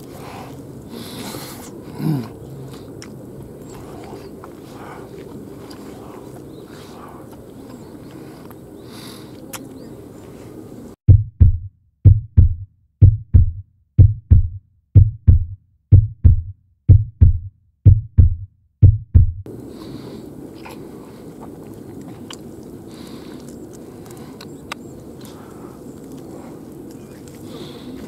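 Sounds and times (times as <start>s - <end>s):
low outdoor background noise: 0.0s - 11.0s, 19.5s - 28.0s
heartbeat thumps: 11.1s - 19.5s.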